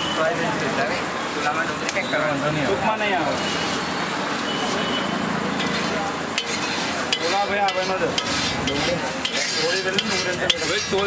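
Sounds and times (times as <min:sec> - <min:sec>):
food sizzling on a griddle: 0:05.6 - 0:11.0
metal spatula clinking on griddle: 0:05.6 - 0:11.0.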